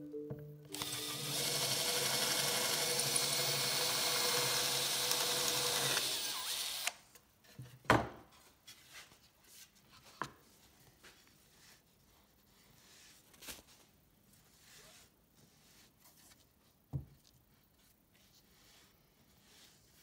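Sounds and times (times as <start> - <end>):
drill boring through resin: 0.7 - 7.0.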